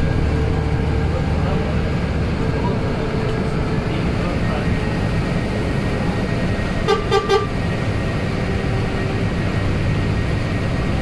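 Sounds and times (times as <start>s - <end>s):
traffic rumble: 0.0s - 11.0s
vehicle horn toots: 6.8s - 7.6s.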